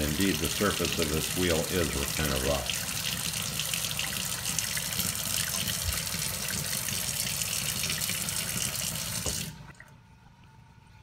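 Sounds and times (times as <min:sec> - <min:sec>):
tap running into steel sink: 0:09.1 - 0:09.5.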